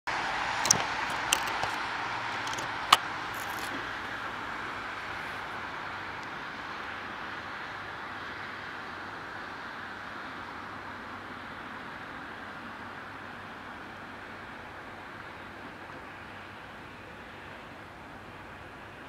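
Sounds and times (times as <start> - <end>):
urban street rushing noise: 0.1 - 19.0
sharp clicks: 0.6 - 3.8.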